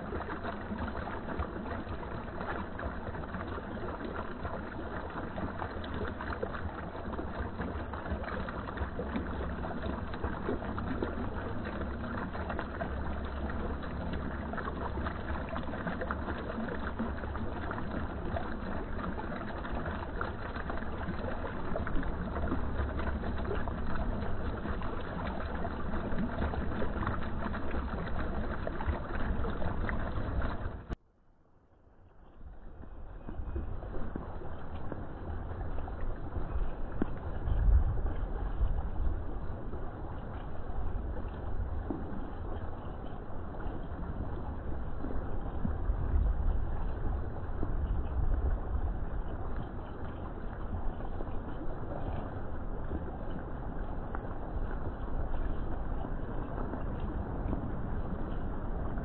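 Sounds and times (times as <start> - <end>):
fountain water splashing: 0.0 - 31.0, 32.2 - 59.0
low rumble: 31.7 - 59.0.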